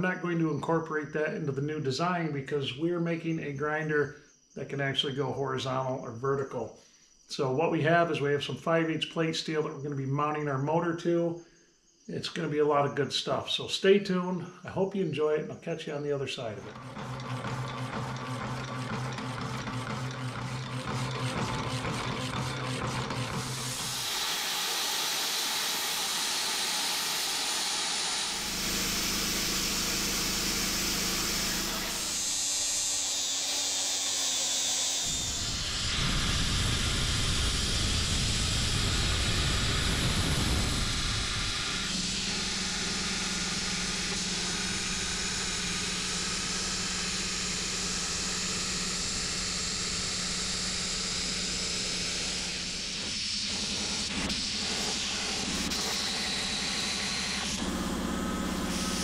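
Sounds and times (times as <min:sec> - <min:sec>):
band saw cutting steel: 0:16.6 - 0:59.0
steady hum: 0:16.6 - 0:59.0
plasma cutter hissing: 0:18.2 - 0:59.0.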